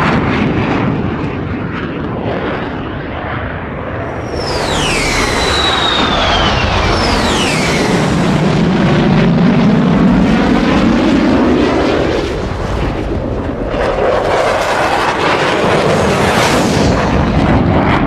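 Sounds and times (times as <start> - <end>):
wind rushing over camera: 3.8 - 18.0
electric motor and propeller whine: 4.0 - 17.5.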